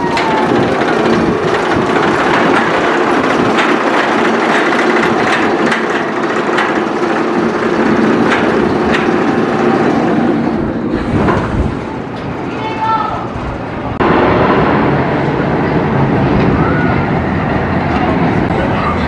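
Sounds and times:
clicks and clacks of track: 0:00.0 - 0:10.4
roller coaster wheels rumbling: 0:00.0 - 0:19.0.

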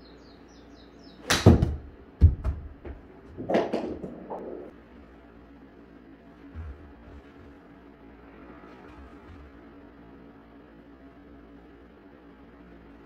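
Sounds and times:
golf club striking ball: 0:01.2 - 0:01.8
ball thudding into enclosure: 0:01.3 - 0:04.6.

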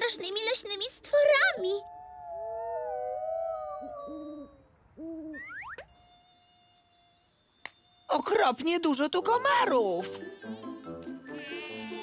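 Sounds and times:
thin mosquito whine: 0:00.0 - 0:12.0
cartoon owl hooting: 0:01.7 - 0:05.8.

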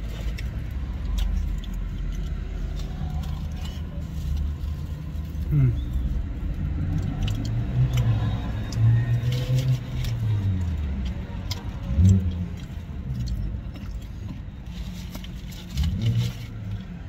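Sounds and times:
chewing food: 0:00.0 - 0:17.0
low steady rumble: 0:00.0 - 0:17.0
person humming: 0:05.5 - 0:05.9.

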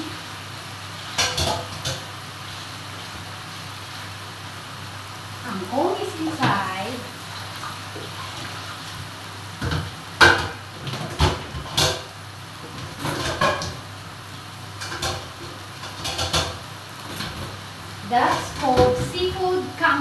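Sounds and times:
greens sizzling in electric pot: 0:00.0 - 0:20.0.

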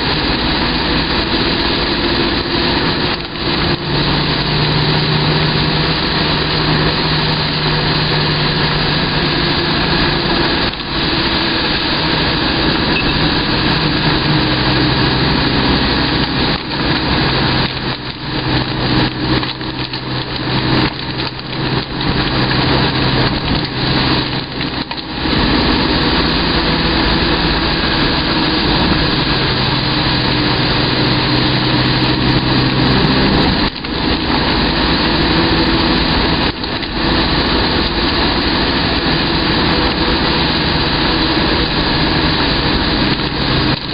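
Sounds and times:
vehicle engine running: 0:00.0 - 0:43.9
wind and wet road noise: 0:00.0 - 0:43.9.

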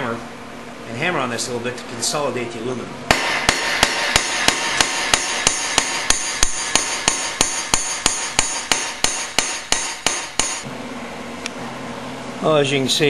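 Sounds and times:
hammer striking metal: 0:03.1 - 0:10.7.

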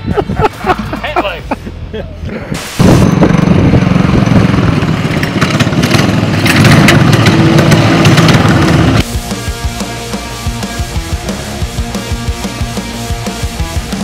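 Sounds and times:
minibike engines running loud: 0:02.9 - 0:12.4.

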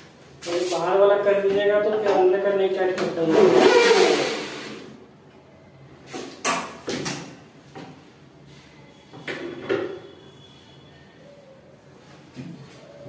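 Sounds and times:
knocks and clatters of cabinet fittings: 0:06.4 - 0:08.0.

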